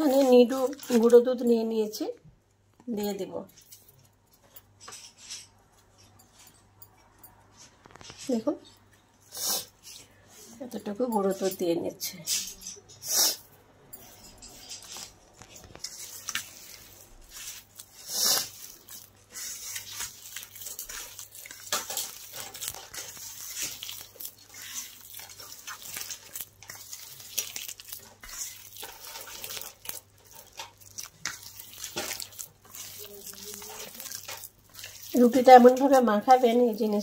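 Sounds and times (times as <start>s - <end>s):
hand squishing wet bread mixture: 0.0s - 1.9s, 14.0s - 37.0s.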